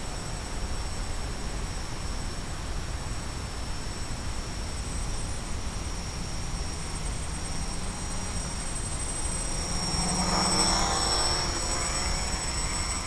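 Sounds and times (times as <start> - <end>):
quadcopter motors buzzing: 4.8 - 13.0.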